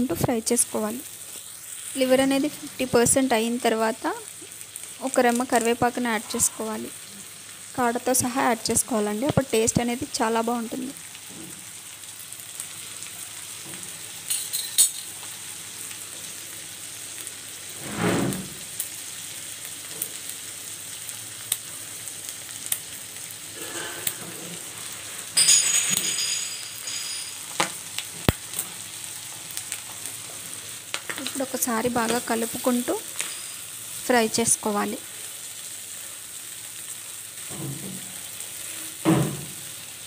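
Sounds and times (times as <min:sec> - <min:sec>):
food sizzling in hot oil: 0:00.0 - 0:40.0.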